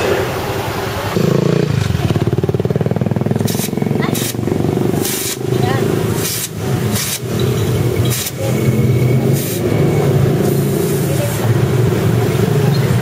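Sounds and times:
motorcycle engine running: 0.0 - 13.0
air hissing from tyre valve: 3.4 - 11.4.

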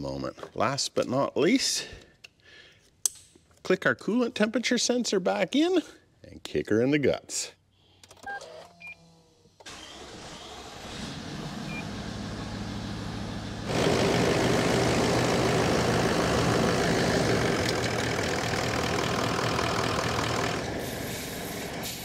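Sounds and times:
diesel engine idling: 9.9 - 22.0.

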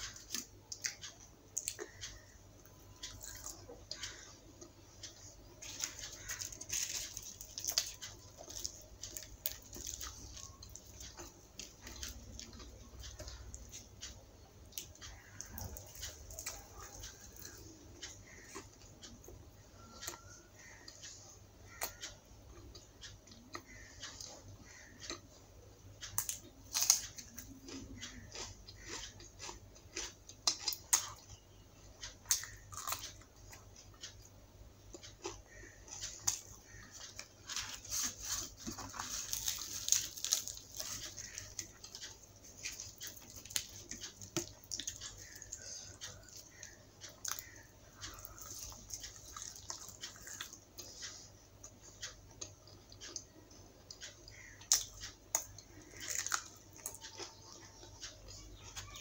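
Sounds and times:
person chewing and biting: 2.9 - 14.1, 14.7 - 20.3, 26.0 - 31.4, 32.0 - 34.2, 34.9 - 58.4
sharp clicks and crunches: 3.0 - 14.1, 26.0 - 31.4, 34.9 - 53.2.

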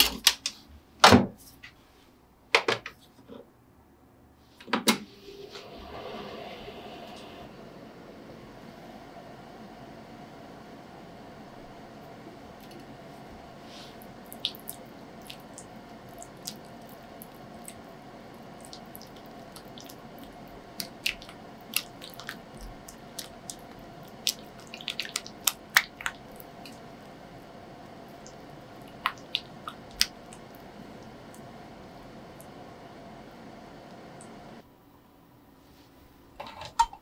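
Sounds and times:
steady background hum: 0.0 - 37.0
spatula squishing cream cheese: 13.7 - 30.7.

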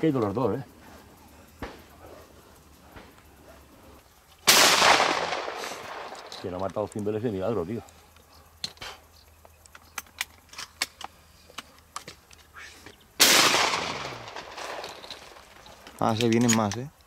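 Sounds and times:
shotgun shot with echo: 4.5 - 6.2, 13.2 - 14.8.

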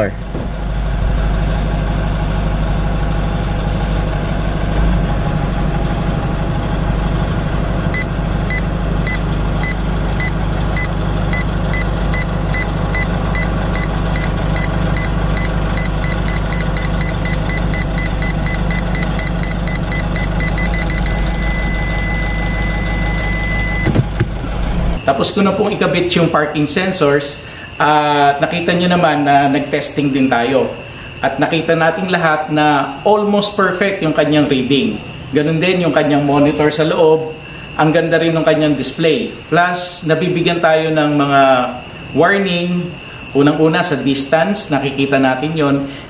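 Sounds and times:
engine running: 0.0 - 25.1
continuous warning tone: 0.0 - 46.0
parking sensor beeping: 7.8 - 24.8.

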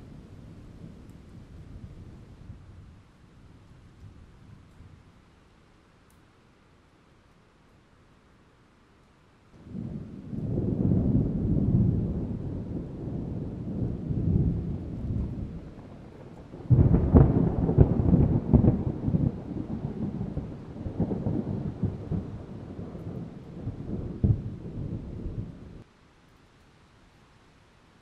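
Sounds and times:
thunder rumbling and cracking: 9.6 - 25.8.

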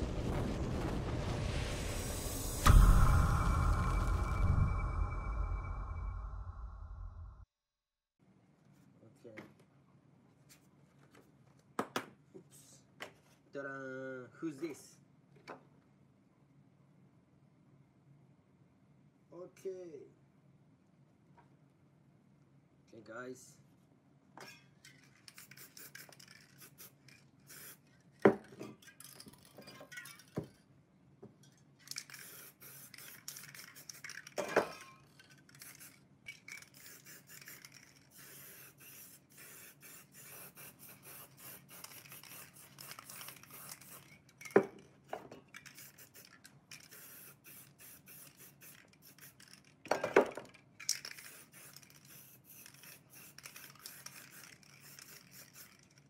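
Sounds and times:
spray paint can hissing: 25.2 - 27.9, 31.9 - 44.7, 45.6 - 49.8, 50.8 - 56.0.

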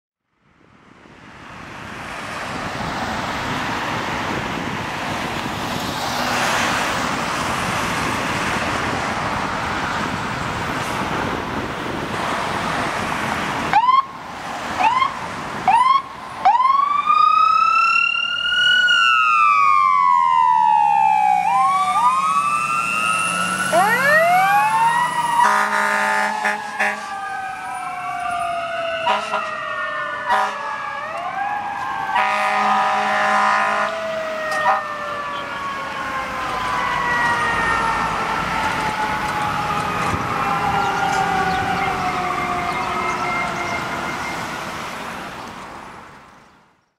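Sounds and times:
wind and traffic hiss: 0.3 - 46.9
siren chirps: 13.7 - 14.2, 14.8 - 44.7
siren wailing: 13.7 - 14.2, 14.8 - 44.7
air horn blasts: 25.4 - 27.1, 29.0 - 29.6, 30.3 - 30.7, 32.2 - 34.0, 34.6 - 34.8.

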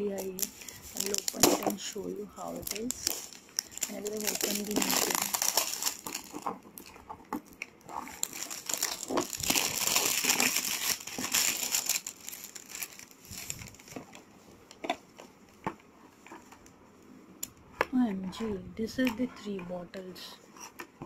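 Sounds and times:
plastic wrapping crinkling: 0.0 - 15.4.

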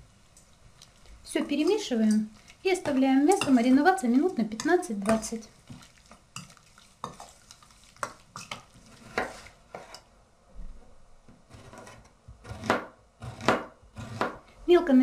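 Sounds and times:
spoon scraping steel bowl: 6.4 - 10.1
knife cutting on wooden board: 8.4 - 10.0.

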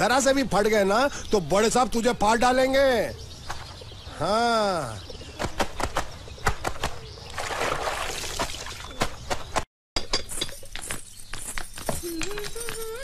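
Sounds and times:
wet cloth slapping: 5.4 - 9.6
water splashing and sloshing: 7.3 - 9.2.

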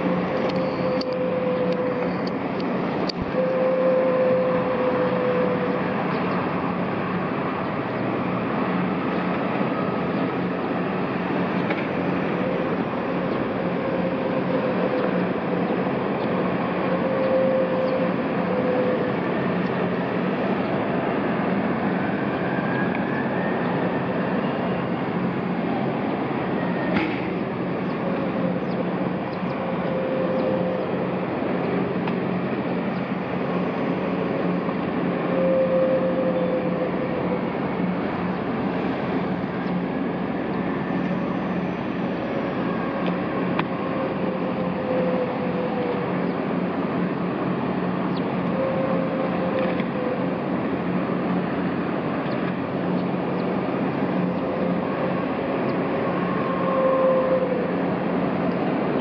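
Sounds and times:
turbine whine: 0.0 - 59.0.

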